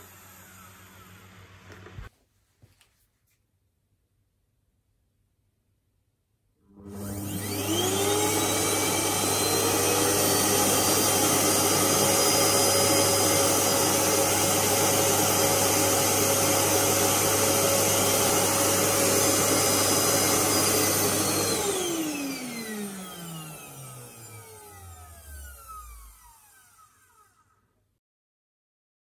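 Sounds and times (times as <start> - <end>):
vacuum cleaner running: 0.0 - 2.1, 6.6 - 27.6.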